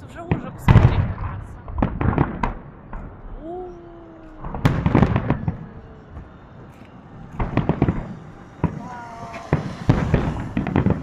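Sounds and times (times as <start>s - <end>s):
fireworks booming and crackling: 0.0s - 11.0s
rising and sinking tone: 2.8s - 11.0s.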